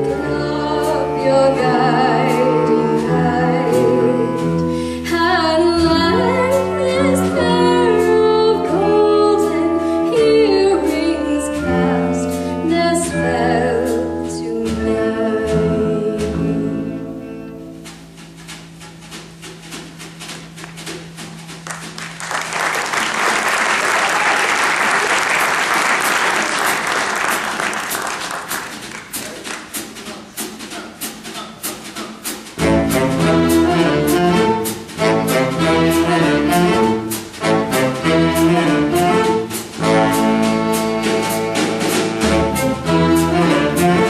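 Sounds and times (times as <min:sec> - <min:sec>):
jazz band with violin: 0:00.0 - 0:22.2, 0:28.4 - 0:44.0
audience applauding: 0:21.6 - 0:29.9
drum kit steady beat: 0:25.4 - 0:44.0.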